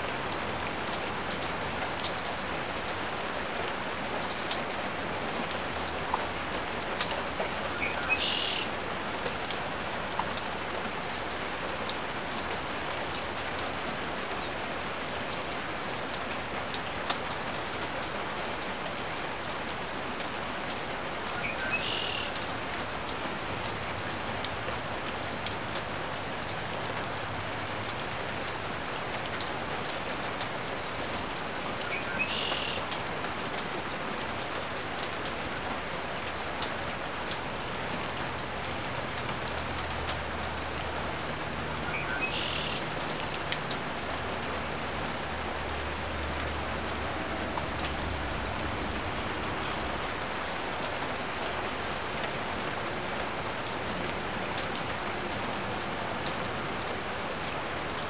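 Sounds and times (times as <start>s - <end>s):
steady rain: 0.0s - 58.0s
high bird calls: 7.8s - 8.7s, 31.8s - 32.9s, 41.8s - 42.9s.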